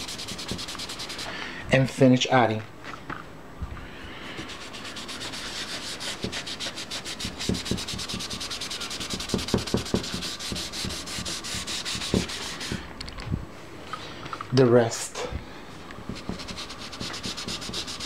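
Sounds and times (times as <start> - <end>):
cotton ball rubbing a surface: 0.0 - 1.3, 4.3 - 12.9, 16.1 - 18.0
hand knocking against painting: 9.1 - 11.0.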